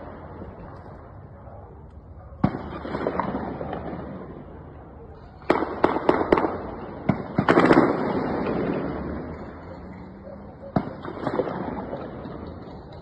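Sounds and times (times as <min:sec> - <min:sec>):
sharp echoing bangs: 0:02.4 - 0:04.7, 0:05.4 - 0:09.8, 0:10.6 - 0:13.0.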